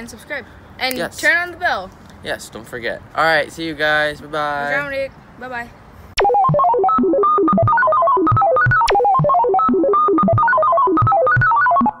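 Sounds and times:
fast electronic keyboard tune: 0:06.2 - 0:12.0.

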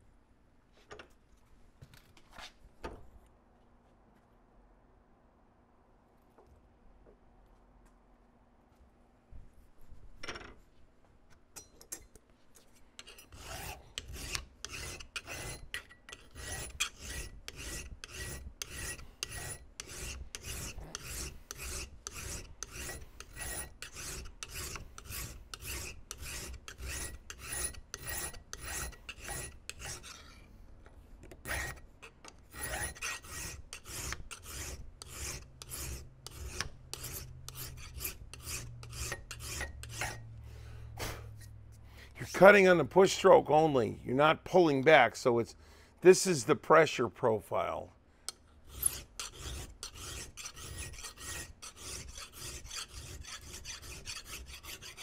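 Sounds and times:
hand file cutting metal: 0:13.0 - 0:30.4, 0:31.3 - 0:40.2, 0:48.3 - 0:55.0.

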